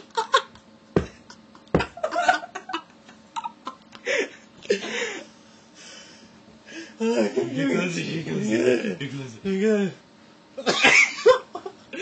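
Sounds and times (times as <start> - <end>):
person laughing: 0.0 - 5.2
sharp knocks: 1.8 - 2.0.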